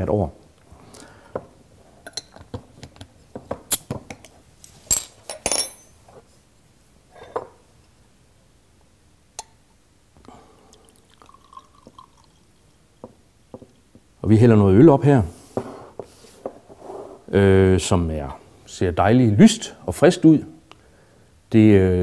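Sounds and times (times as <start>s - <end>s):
glassware clinking: 4.9s - 6.0s, 11.2s - 12.4s
beer pouring into a glass: 10.4s - 12.7s.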